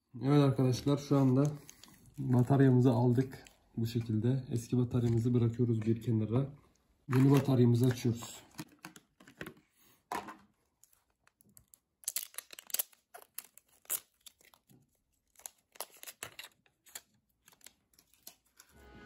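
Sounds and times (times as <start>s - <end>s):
plastic packaging crinkling: 0.8s - 4.1s, 7.1s - 8.9s, 10.8s - 18.8s.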